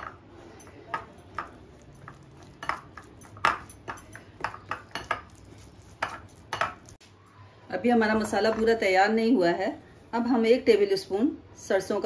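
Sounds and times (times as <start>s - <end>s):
metal spoon clinking glass bowl: 0.0s - 7.0s.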